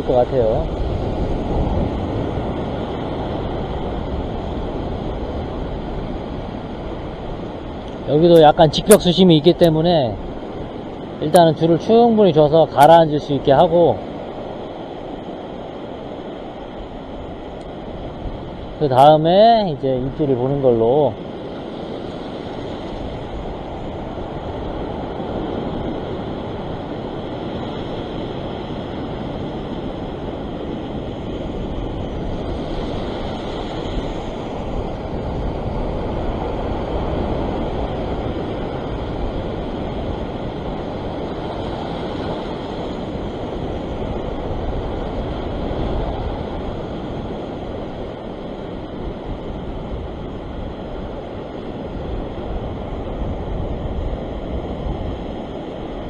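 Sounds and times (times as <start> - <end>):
ocean swell breaking over rocks: 0.0 - 56.0
wind rumbling on microphone: 0.0 - 56.0.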